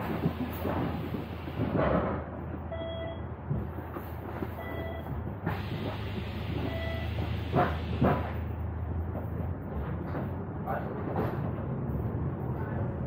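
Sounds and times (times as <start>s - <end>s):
bus engine and road drone: 0.0s - 13.0s
short electronic beeps: 2.7s - 3.2s, 4.6s - 5.1s, 6.6s - 7.1s.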